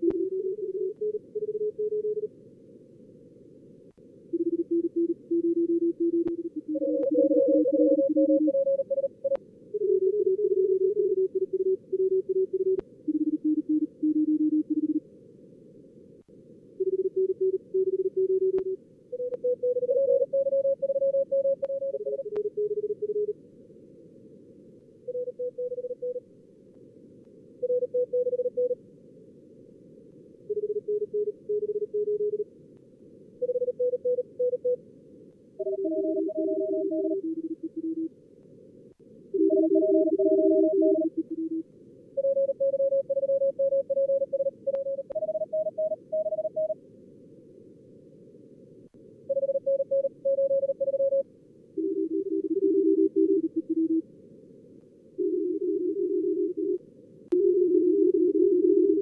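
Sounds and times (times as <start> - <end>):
morse code tones: 4.4 - 15.0, 16.8 - 23.3, 35.6 - 38.1, 39.4 - 41.6, 42.2 - 46.8, 49.3 - 51.2, 51.8 - 54.0.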